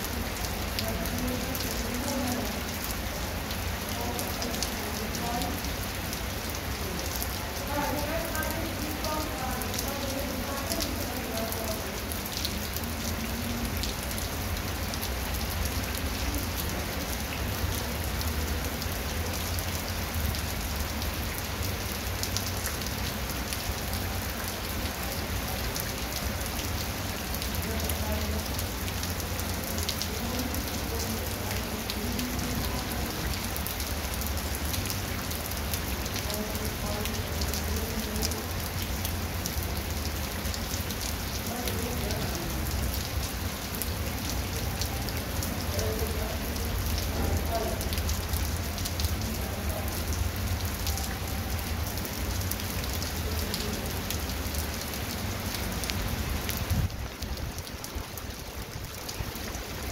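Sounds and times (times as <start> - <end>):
heavy rain on concrete and grass: 0.0 - 59.9.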